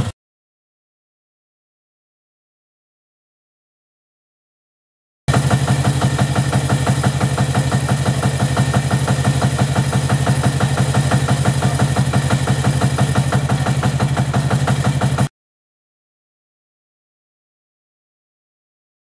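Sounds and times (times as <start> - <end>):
small diesel engine idling: 5.3 - 15.3.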